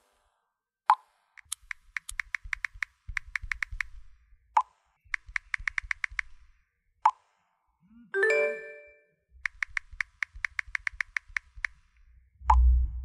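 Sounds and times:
keyboard typing clicks: 1.4s - 4.0s, 5.1s - 6.4s, 9.4s - 11.8s.

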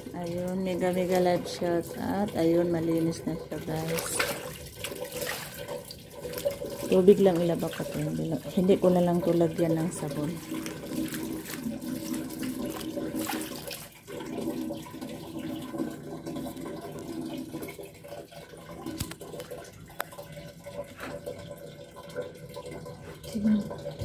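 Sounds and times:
water running from hose: 0.0s - 24.0s
water sloshing: 0.0s - 24.0s.

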